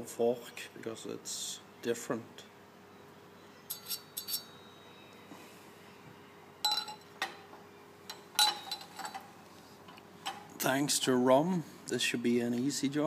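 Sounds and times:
small metal parts clinking: 0:03.7 - 0:04.5, 0:06.6 - 0:07.1, 0:08.1 - 0:09.2.

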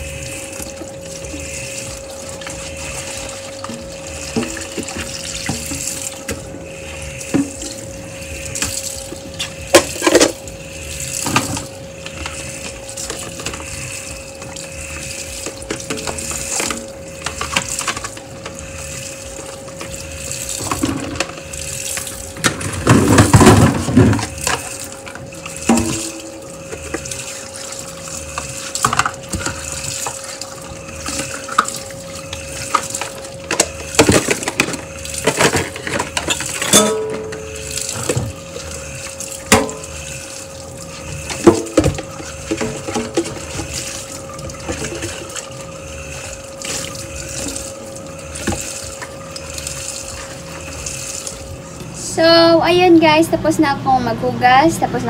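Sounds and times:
steady hum: 0:00.0 - 0:55.0
tap water splashing into sink: 0:00.6 - 0:06.5, 0:11.1 - 0:13.8, 0:14.4 - 0:18.8, 0:19.5 - 0:27.3, 0:28.2 - 0:40.4, 0:41.1 - 0:51.4
dishes clattering: 0:32.7 - 0:38.3, 0:39.5 - 0:39.9, 0:41.3 - 0:43.7.

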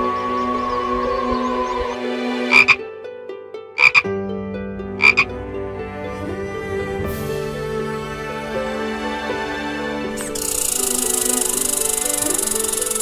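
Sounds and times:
background music: 0:00.0 - 0:13.0
sharp animal calls: 0:02.5 - 0:02.8, 0:03.8 - 0:04.1, 0:05.0 - 0:05.3.

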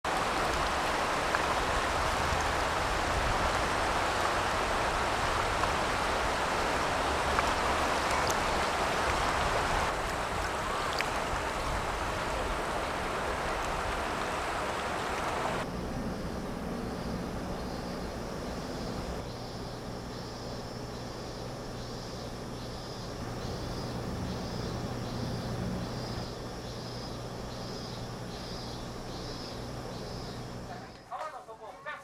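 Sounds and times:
river water rushing over stones: 0:00.1 - 0:15.7.

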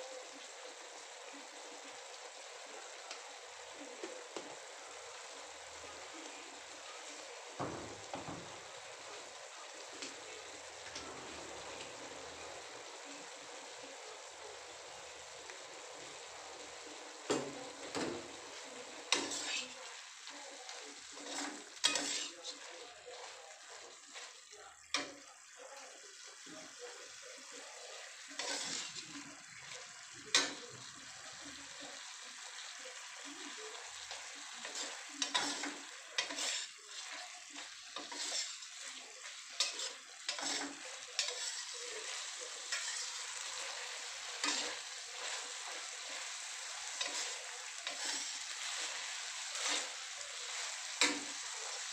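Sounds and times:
beans sizzling in a wok: 0:00.0 - 0:51.9
metal spatula scraping: 0:19.1 - 0:19.8, 0:21.2 - 0:23.4, 0:28.3 - 0:29.2, 0:34.1 - 0:51.9.

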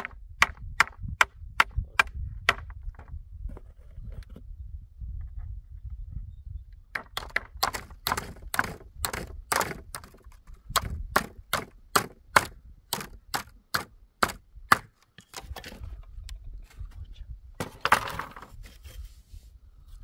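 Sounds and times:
tool striking wood: 0:06.9 - 0:15.5.

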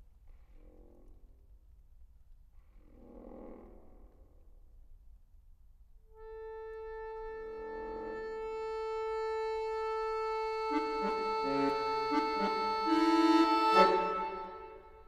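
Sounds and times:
accordion lower notes: 0:06.1 - 0:15.0
accordion long high note: 0:06.2 - 0:15.0.

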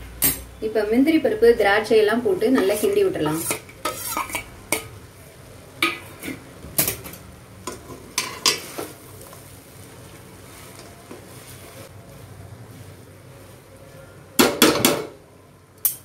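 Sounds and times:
faint steady hiss: 0:00.0 - 0:16.0
metal spatula scraping a pan: 0:02.4 - 0:04.9, 0:05.8 - 0:09.3.

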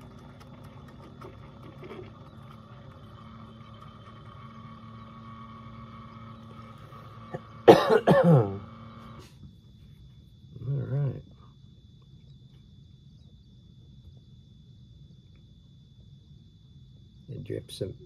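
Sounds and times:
faint steady hum: 0:00.0 - 0:18.0
man coughing: 0:07.7 - 0:08.6.

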